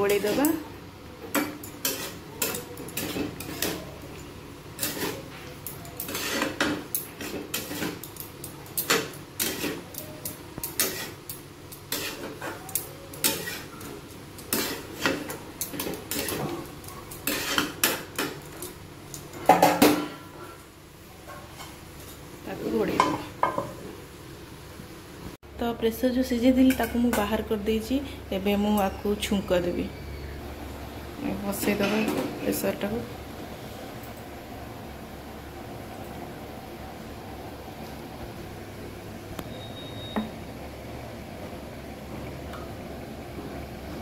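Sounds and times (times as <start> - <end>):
metal spatula scraping pan: 1.4 - 4.0, 4.8 - 8.1, 8.8 - 10.0, 10.7 - 11.3, 11.9 - 18.4.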